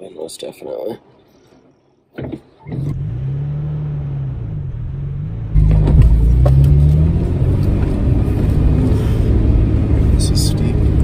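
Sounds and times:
vehicle engine from inside cabin: 2.6s - 11.0s.

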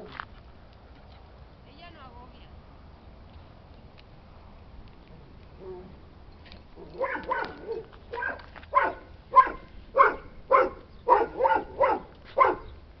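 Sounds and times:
dog barking: 6.9s - 12.7s.

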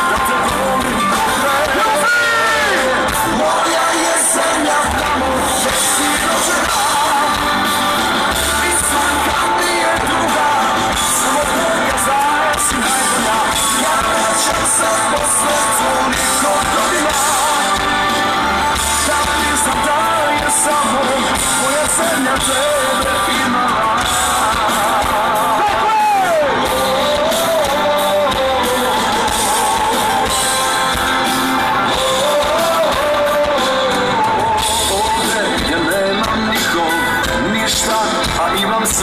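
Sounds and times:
song over loudspeakers: 0.0s - 39.0s.

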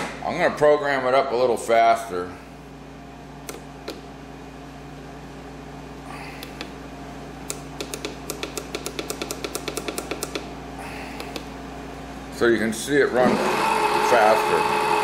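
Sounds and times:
low electrical hum: 0.0s - 15.0s
rapid sharp clicks: 7.4s - 10.5s.

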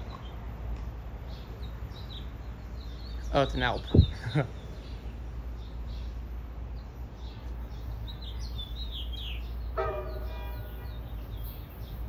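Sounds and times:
steady low rumble: 0.0s - 8.6s
birds chirping: 0.0s - 12.0s
train horn blast: 9.8s - 11.1s.

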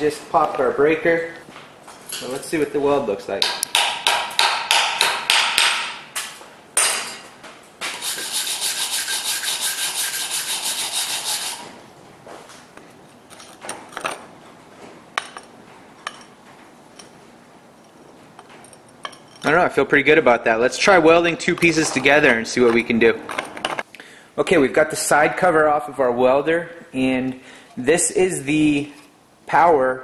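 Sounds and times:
wire brush scrubbing metal: 8.0s - 11.8s.

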